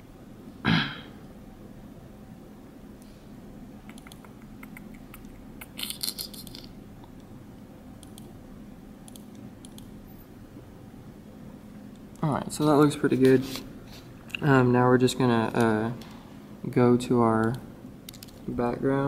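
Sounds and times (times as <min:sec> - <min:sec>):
low steady hum: 0:00.0 - 0:19.0
mouse and keyboard clicks: 0:03.8 - 0:06.7, 0:17.4 - 0:18.4.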